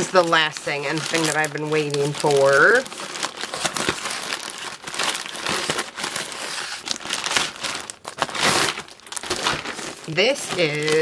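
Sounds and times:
crinkly packaging rustling: 0.0s - 11.0s.

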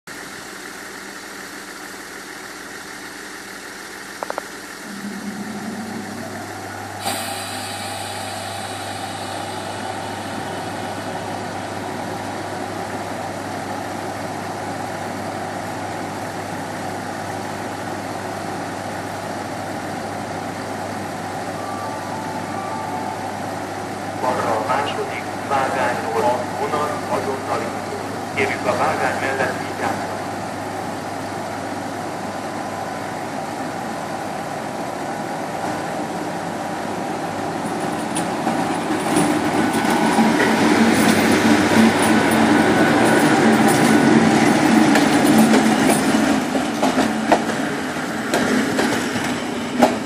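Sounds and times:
running machinery rush: 4.2s - 12.0s
electrical equipment humming: 4.2s - 12.9s
deeper hum: 4.3s - 11.8s
sudden sharp burst: 4.8s - 10.5s.

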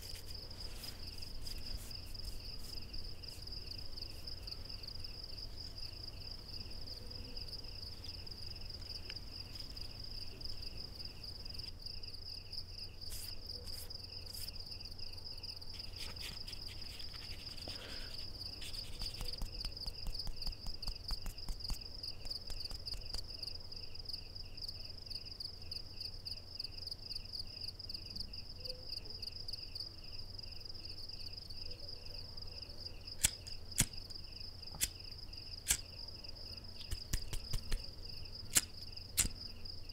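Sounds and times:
rustling of rolling a cigarette: 0.0s - 6.5s, 13.1s - 14.6s, 15.7s - 23.5s, 36.7s - 37.9s
crickets chirping: 0.0s - 39.9s.

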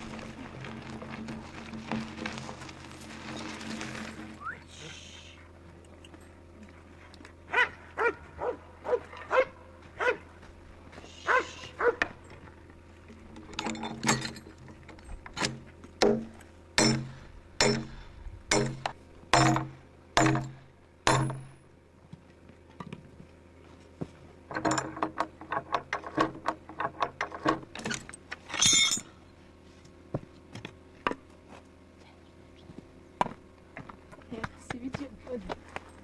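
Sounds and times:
chain links rattling: 28.5s - 29.1s.

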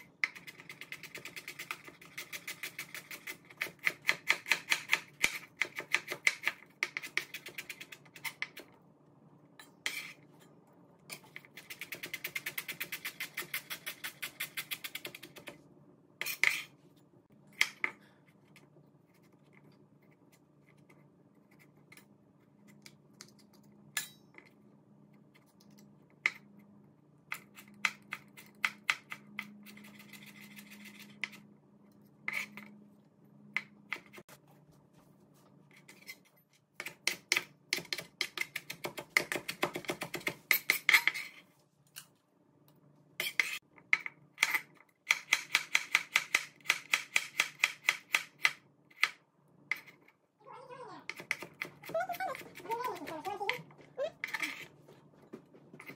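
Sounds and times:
knife chopping on plastic board: 36.8s - 40.5s.

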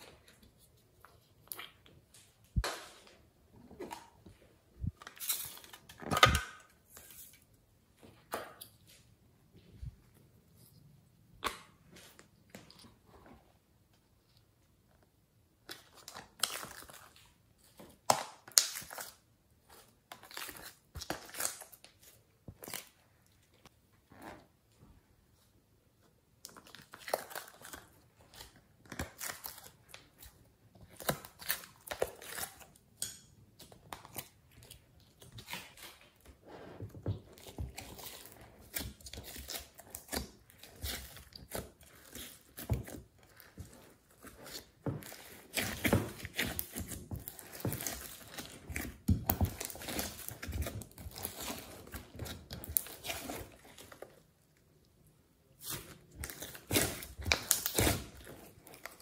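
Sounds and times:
slime squelching and crackling: 33.5s - 54.8s, 55.5s - 59.0s.

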